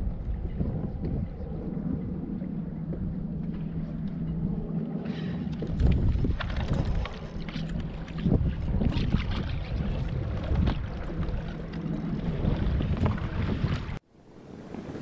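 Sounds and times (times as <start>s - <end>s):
wind buffeting microphone: 0.0s - 15.0s
water slapping boat hull: 5.4s - 14.0s.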